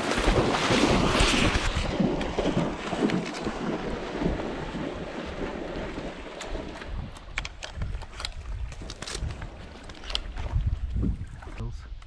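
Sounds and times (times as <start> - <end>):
water sloshing and splashing: 0.0 - 11.8
camera handling noise: 7.0 - 10.3.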